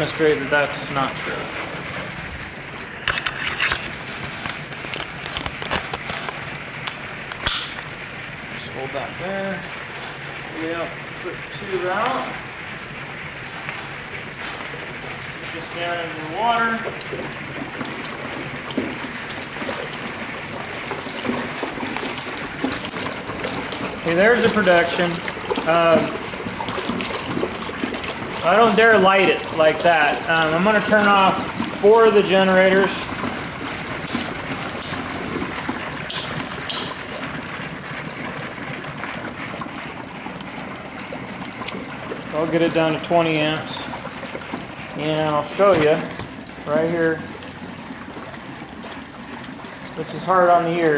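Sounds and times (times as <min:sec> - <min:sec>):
gas bubbling through water: 0:00.0 - 0:50.9.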